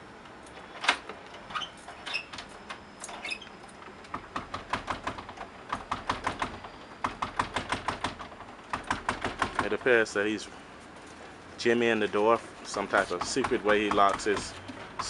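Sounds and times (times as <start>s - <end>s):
door squeaking: 0.8s - 9.8s.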